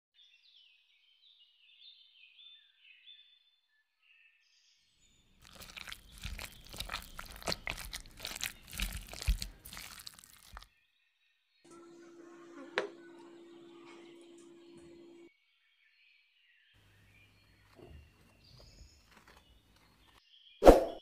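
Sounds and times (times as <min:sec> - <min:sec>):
metal spoon stirring in bowl: 0:05.4 - 0:10.6.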